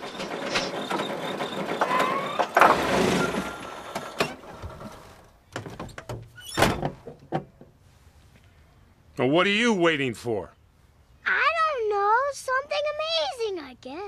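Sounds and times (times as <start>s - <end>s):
cartoon car slam with rattle: 0.1s - 4.5s.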